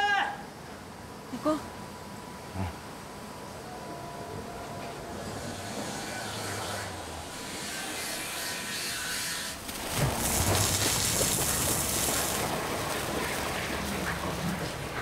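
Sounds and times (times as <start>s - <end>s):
molten iron pouring: 7.4s - 15.0s.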